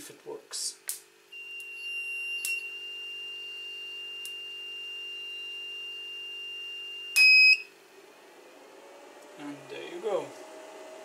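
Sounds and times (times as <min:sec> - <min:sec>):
low steady hum: 0:00.0 - 0:11.0
alarm buzzer high beep: 0:01.4 - 0:07.7.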